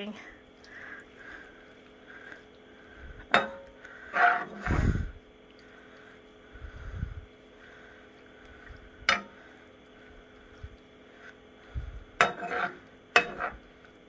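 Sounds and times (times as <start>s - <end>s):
metal spoon scraping frying pan: 3.3s - 4.7s, 12.2s - 13.7s
metal clacking on pan: 9.1s - 9.4s, 12.2s - 13.6s.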